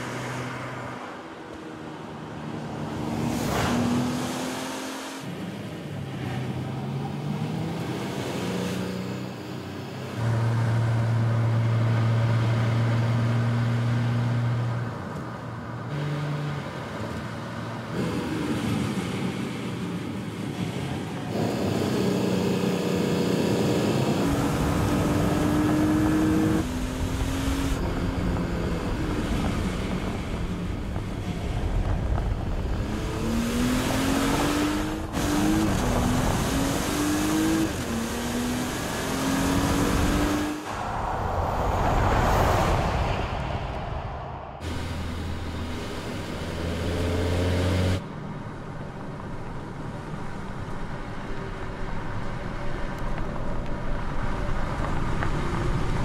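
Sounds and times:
car engine accelerating: 0:42.6 - 0:48.1.

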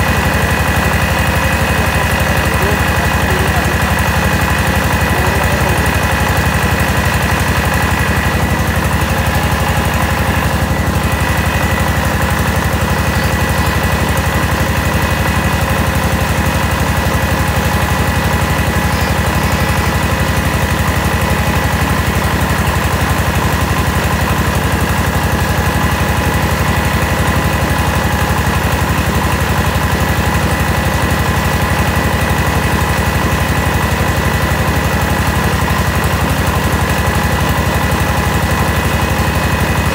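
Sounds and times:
milling machinery whine: 0:00.0 - 0:27.6
engine rapid beat: 0:00.0 - 0:39.9.

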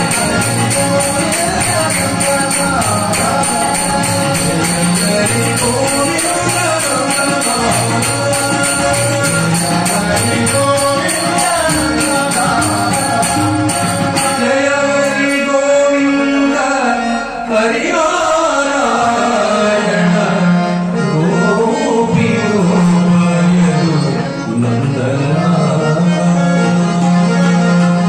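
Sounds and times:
tabla drumming: 0:00.0 - 0:16.0
harmonium: 0:00.0 - 0:28.0
men singing: 0:00.0 - 0:28.0.

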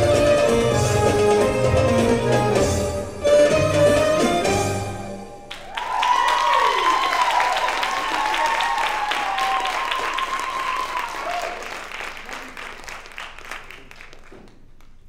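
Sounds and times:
belly-dance music: 0:00.0 - 0:07.0
crowd cheering: 0:05.5 - 0:13.9
audience applause: 0:05.5 - 0:14.8.

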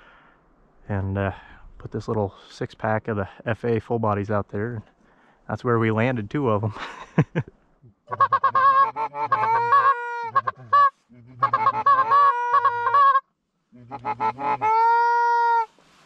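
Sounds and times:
goose call clucks and honks: 0:08.1 - 0:15.7.

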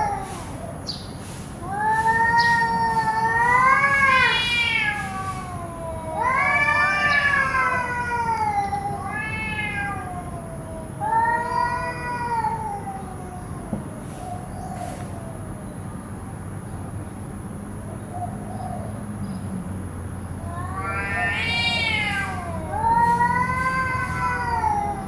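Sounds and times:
cats yowling: 0:00.0 - 0:00.8, 0:01.5 - 0:15.6, 0:20.4 - 0:25.0.

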